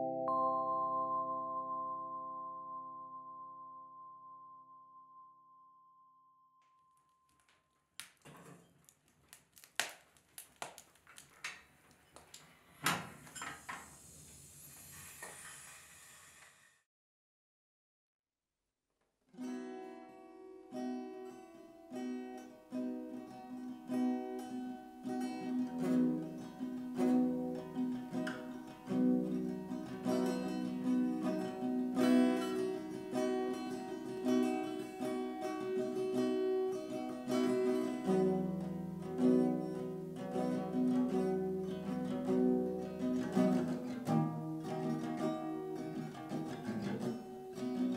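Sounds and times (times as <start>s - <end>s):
plucked acoustic guitar: 19.4s - 47.9s.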